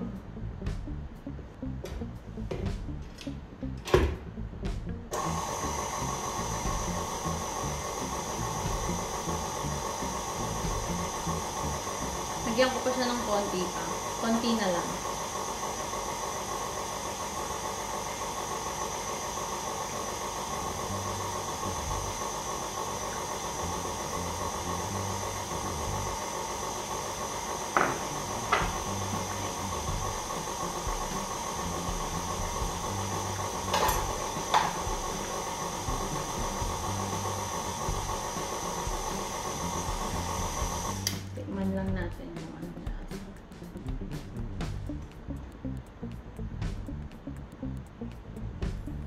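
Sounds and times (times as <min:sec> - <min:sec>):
electric stand mixer running: 0:05.1 - 0:41.4.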